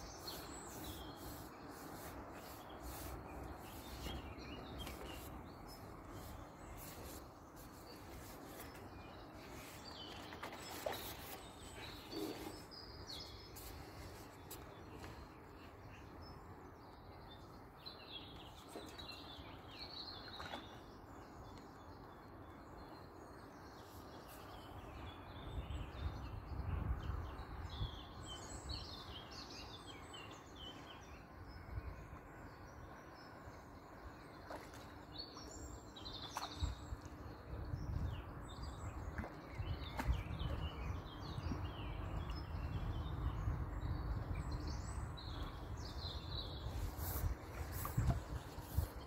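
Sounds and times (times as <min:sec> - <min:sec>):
songbirds chirping and trilling: 0:00.0 - 0:49.0
low rumble on microphone: 0:36.6 - 0:49.0.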